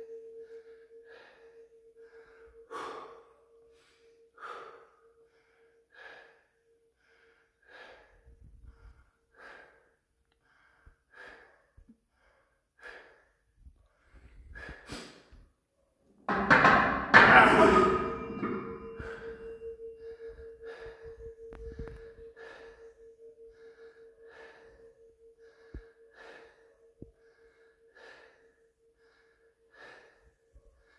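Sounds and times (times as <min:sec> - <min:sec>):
faint steady ringing tone: 0:00.0 - 0:09.2, 0:16.3 - 0:30.9.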